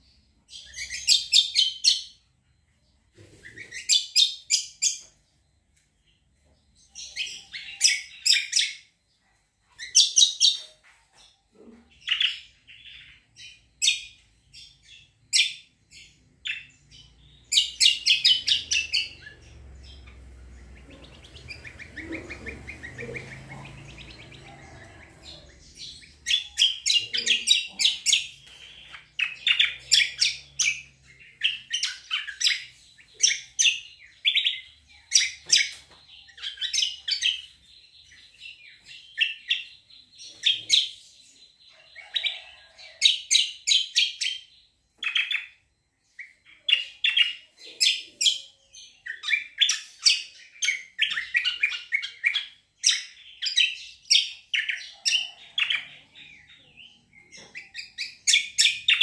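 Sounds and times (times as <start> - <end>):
songbird chirping: 0.0 - 59.0.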